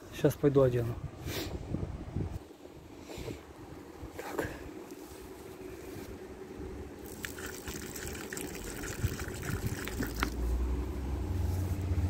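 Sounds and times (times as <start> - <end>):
vehicle low rumble: 0.0 - 12.0
water pouring into a dish: 7.0 - 10.4.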